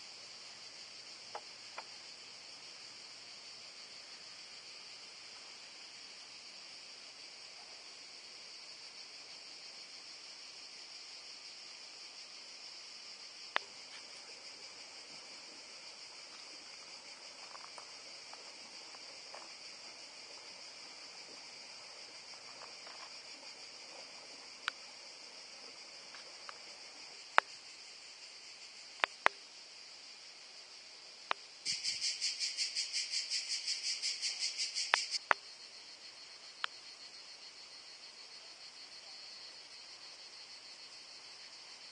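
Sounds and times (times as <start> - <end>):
cicada pulsing call: 0.0 - 41.9
cicadas buzzing: 0.0 - 41.9.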